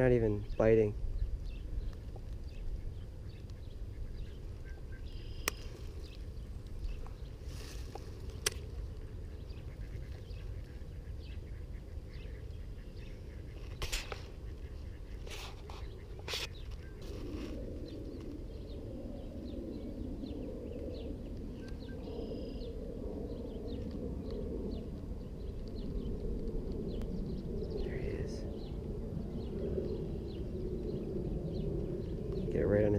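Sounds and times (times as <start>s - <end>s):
birds chirping: 0.0s - 32.9s
low rumble: 0.0s - 32.9s
sharp clicks: 5.4s - 5.8s.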